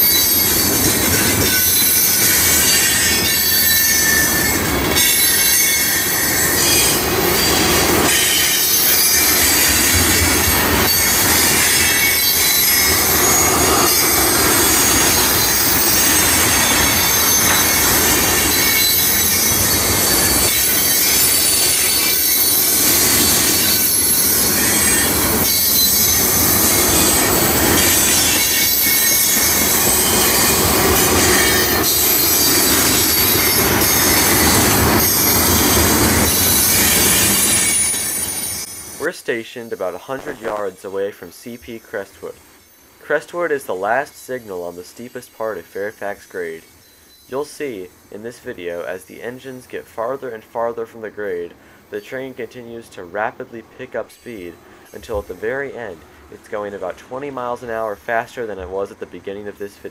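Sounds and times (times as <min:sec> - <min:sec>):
freight train rumble: 0:00.0 - 0:39.1
steel wheels squealing on rail: 0:00.0 - 0:59.9.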